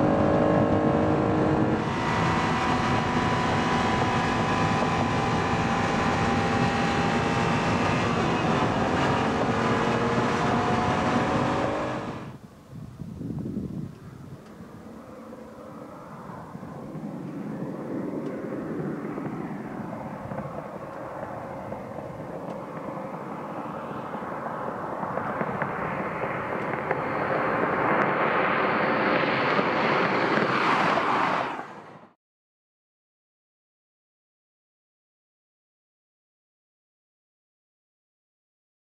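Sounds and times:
sports car engines approaching: 0:00.0 - 0:12.4, 0:14.3 - 0:31.9.

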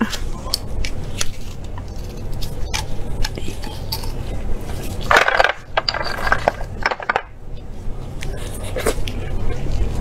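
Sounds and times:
shells clattering on a plate: 0:05.1 - 0:07.3.

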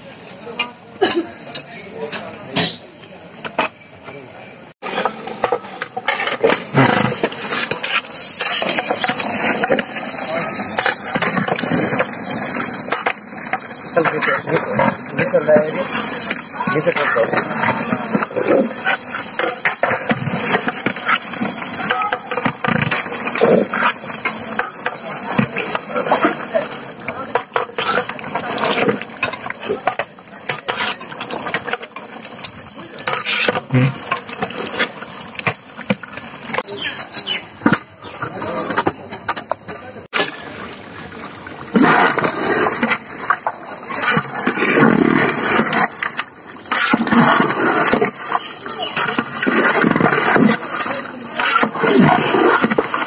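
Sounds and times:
rough rushing noise: 0:04.8 - 0:33.8
metal spatula scraping a pot: 0:04.8 - 0:35.0
hot curry hissing: 0:04.8 - 0:38.7, 0:40.1 - 0:53.0.

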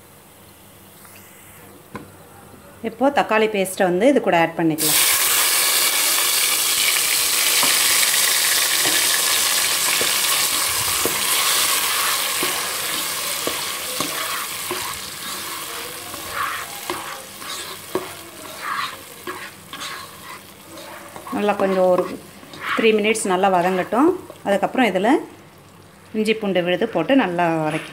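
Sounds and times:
paste sizzling in hot oil: 0:04.8 - 0:24.8
spatula stirring and scraping: 0:07.4 - 0:24.4.

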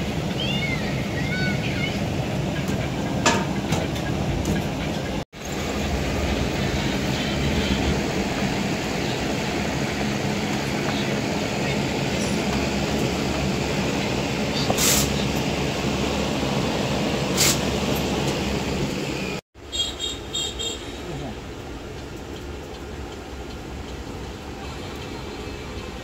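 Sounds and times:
gas steamer roaring: 0:00.0 - 0:19.4.

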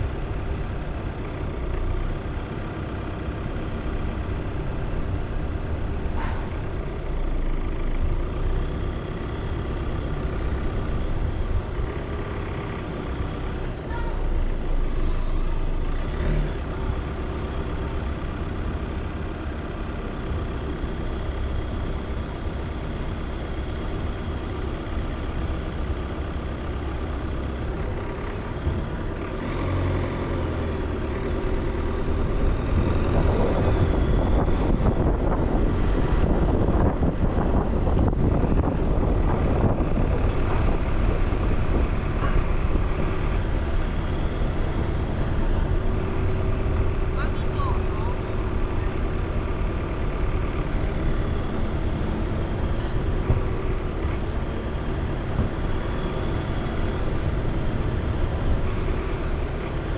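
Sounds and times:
car engine and road noise: 0:00.0 - 0:59.9.

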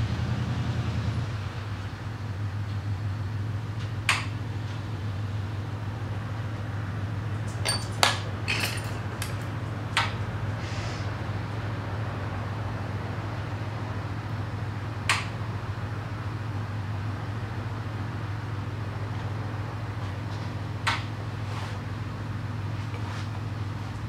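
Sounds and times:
glass rods and tools clinking: 0:07.4 - 0:09.6.

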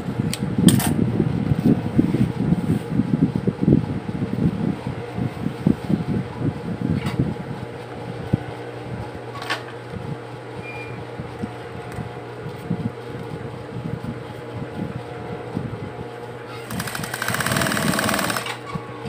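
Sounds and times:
motor humming: 0:09.9 - 0:19.0.

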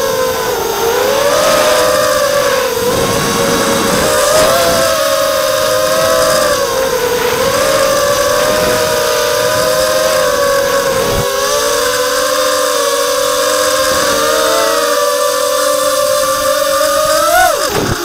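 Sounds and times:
rush of air noise: 0:00.0 - 0:11.8
quadcopter motors whining: 0:00.0 - 0:18.0.

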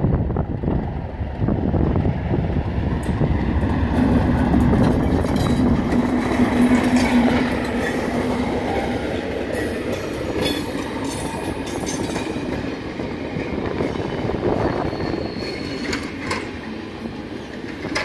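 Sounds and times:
diesel locomotive engine: 0:00.0 - 0:18.0
train wheels clicking over rail joints: 0:03.0 - 0:14.3, 0:15.0 - 0:18.0.

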